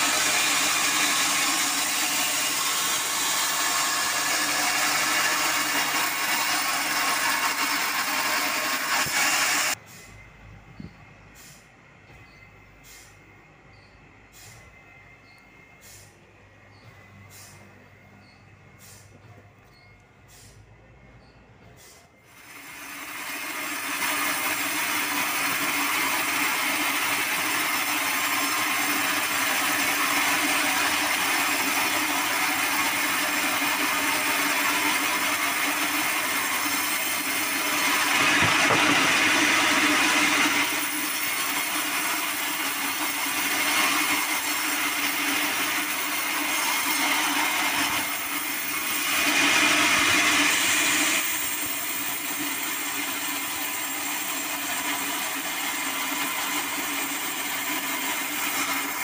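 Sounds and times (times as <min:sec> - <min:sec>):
band saw cutting log: 0:00.0 - 0:09.8, 0:21.9 - 0:59.0.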